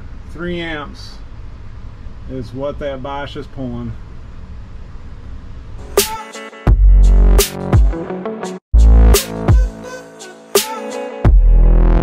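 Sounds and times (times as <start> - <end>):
electronic music: 5.8 - 12.0
deep bass: 6.7 - 8.0, 8.7 - 9.8, 11.3 - 12.0.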